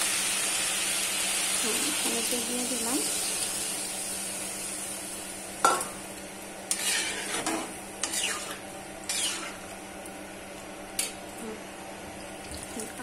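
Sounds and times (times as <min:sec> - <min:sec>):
faint sizzle: 0:00.0 - 0:13.0
metal spatula scraping a pan: 0:06.7 - 0:09.6.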